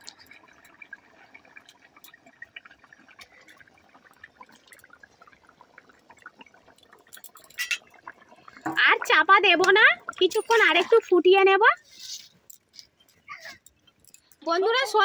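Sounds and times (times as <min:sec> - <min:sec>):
gravy bubbling at the boil: 0:00.0 - 0:11.9
small pops and drips: 0:00.0 - 0:15.0.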